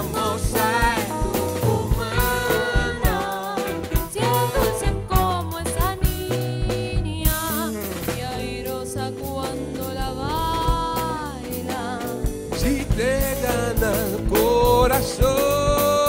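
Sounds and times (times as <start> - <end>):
woman singing with vibrato: 0.0 - 12.3
drum kit: 0.0 - 16.0
electric bass line: 0.0 - 16.0.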